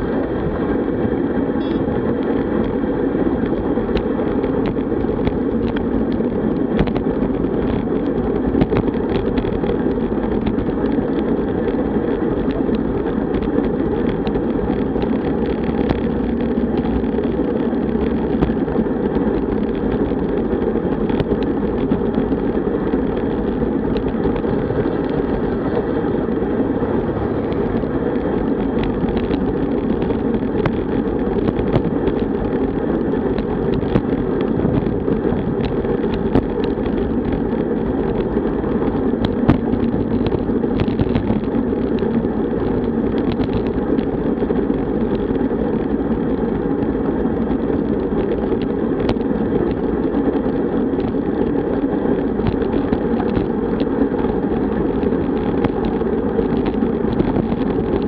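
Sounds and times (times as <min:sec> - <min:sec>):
road noise: 0:00.0 - 0:58.0
wind rushing: 0:22.3 - 0:38.9.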